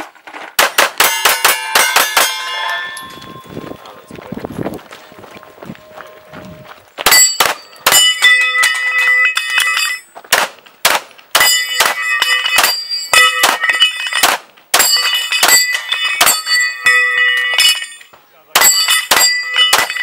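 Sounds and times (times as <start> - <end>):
steel plates ringing: 1.0 - 4.2, 7.1 - 10.1, 11.4 - 20.0.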